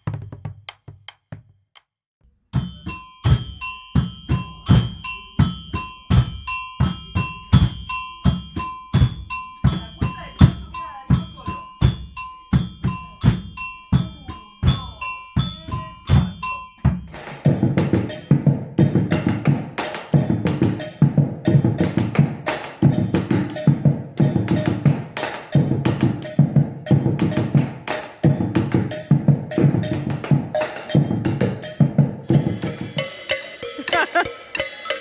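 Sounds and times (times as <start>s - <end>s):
deep drum strokes: 31.0s - 34.6s.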